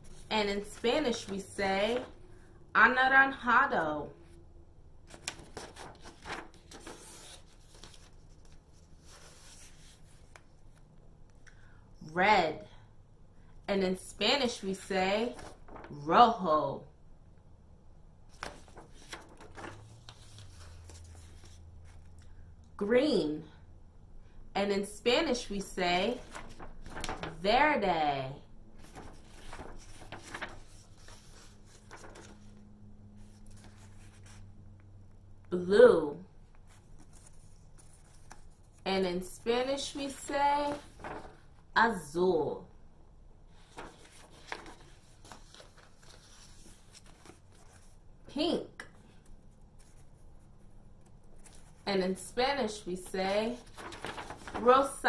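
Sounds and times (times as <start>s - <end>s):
low steady hum: 0.0s - 55.0s
paper cards rustling and tapping: 5.1s - 10.9s, 15.4s - 15.9s, 18.3s - 22.2s, 26.2s - 27.4s, 28.8s - 32.6s, 40.7s - 41.5s, 43.6s - 48.0s, 53.5s - 54.7s.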